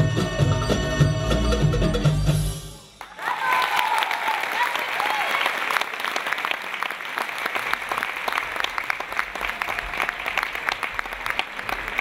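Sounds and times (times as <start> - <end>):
audience applauding: 3.0 - 12.0.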